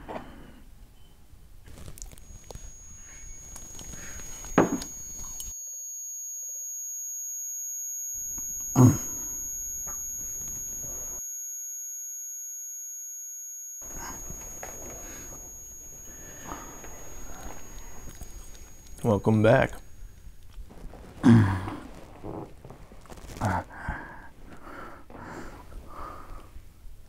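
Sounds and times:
high-pitched ringing tone: 1.7s - 20.6s.

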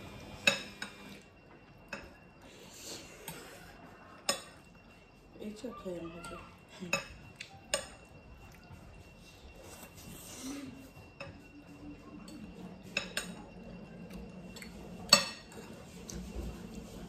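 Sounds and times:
cutlery clinking on glass plates: 4.2s - 4.7s, 6.2s - 8.1s, 12.2s - 13.6s, 14.5s - 16.3s.

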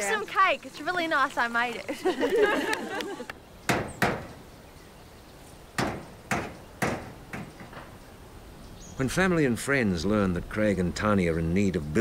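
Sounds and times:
hammer on corrugated iron roof: 3.7s - 4.4s, 5.8s - 7.9s.

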